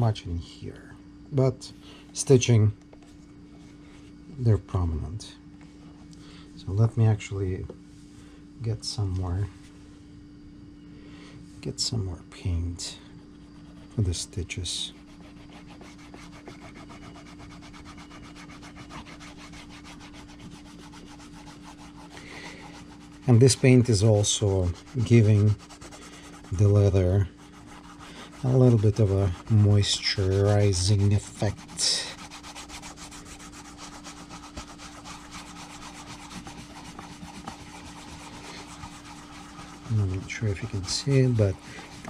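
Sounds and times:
faint steady hum: 0.0 - 42.0
rubbing on leather: 13.2 - 42.0.

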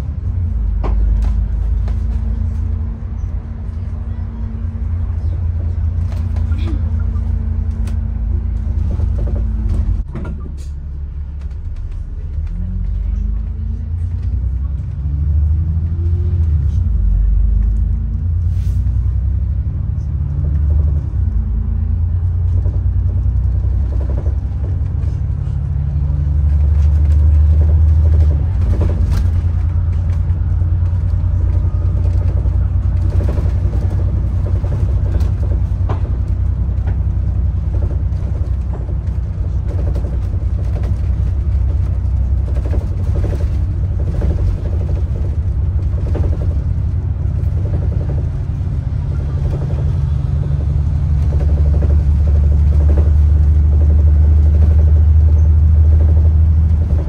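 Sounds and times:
bus engine and road rumble: 0.0 - 57.0
bodywork rattling and knocking: 5.6 - 10.5, 22.5 - 57.0.

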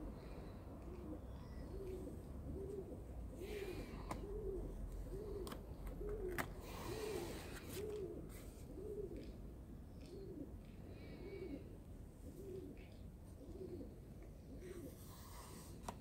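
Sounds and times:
pigeon cooing: 0.0 - 15.7
sketchbook pages rustling: 4.8 - 8.7.

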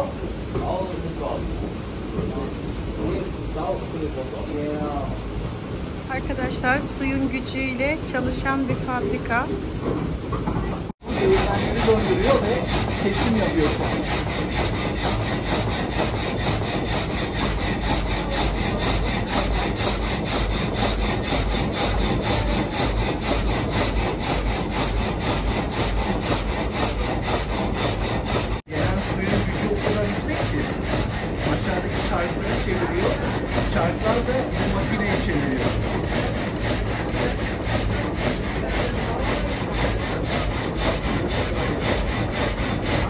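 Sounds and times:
frame saw rasping through log: 11.0 - 43.0.

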